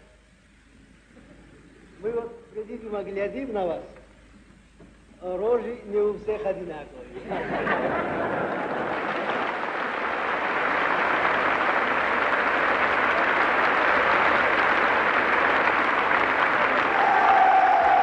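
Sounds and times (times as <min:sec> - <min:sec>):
audience applauding: 0:07.7 - 0:18.0.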